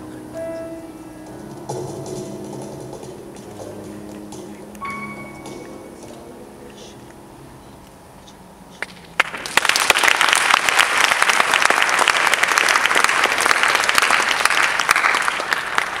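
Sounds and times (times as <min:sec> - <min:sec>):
piano chord: 0:00.0 - 0:07.8
audience applauding: 0:09.2 - 0:16.0.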